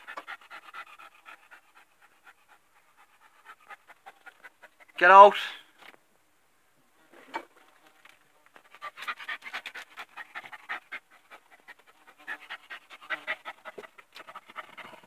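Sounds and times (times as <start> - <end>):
dog panting: 0.0 - 5.0, 8.6 - 15.0.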